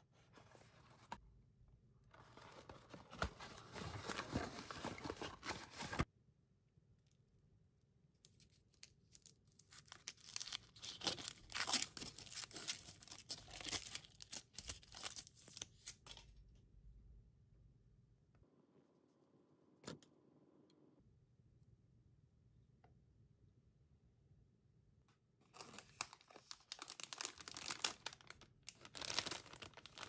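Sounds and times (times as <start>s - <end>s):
foil wrapper crinkling: 25.6s - 30.0s.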